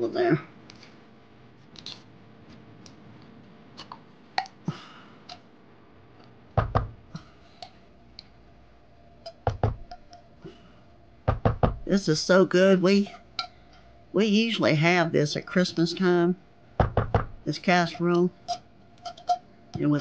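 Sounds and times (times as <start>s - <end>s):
heavier thumps: 6.6s - 7.1s, 9.4s - 9.9s, 11.2s - 11.9s, 16.8s - 17.5s.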